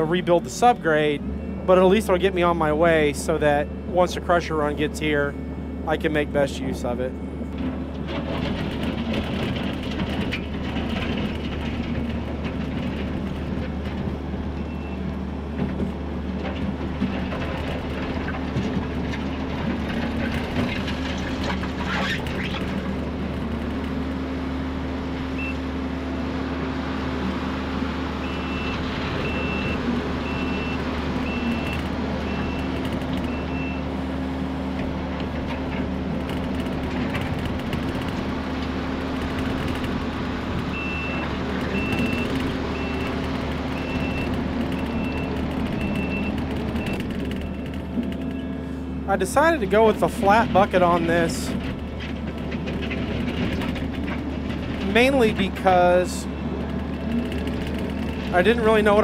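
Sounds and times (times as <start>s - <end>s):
diesel engine running: 0.0s - 59.0s
reversing alarm high pips: 28.2s - 33.9s.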